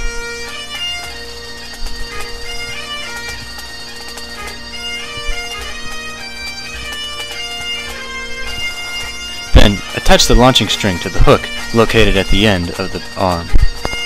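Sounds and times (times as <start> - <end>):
bagpipe music: 0.0 - 14.0.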